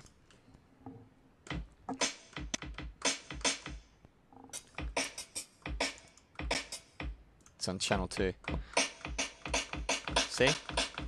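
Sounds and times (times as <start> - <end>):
drum machine hits: 1.5 - 3.8, 4.5 - 7.2, 8.0 - 11.0.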